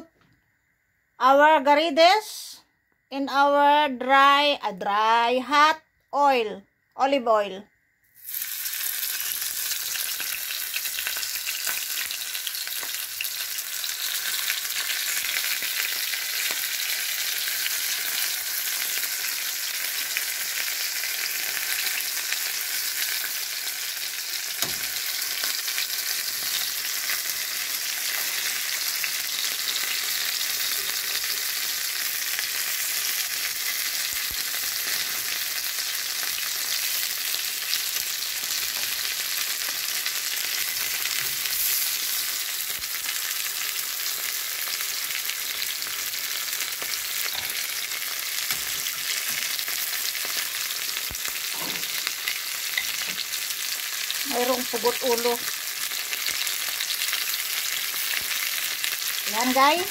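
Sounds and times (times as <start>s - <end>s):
shrimp sizzling in oil: 8.0s - 59.9s
tongs knocking in pan: 24.6s - 25.0s.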